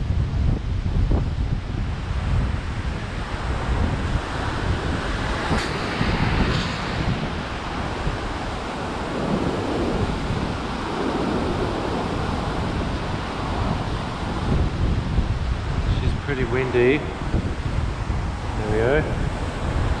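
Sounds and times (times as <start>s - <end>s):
wind buffeting microphone: 0.0s - 20.0s
surf breaking against cliff: 3.4s - 14.7s.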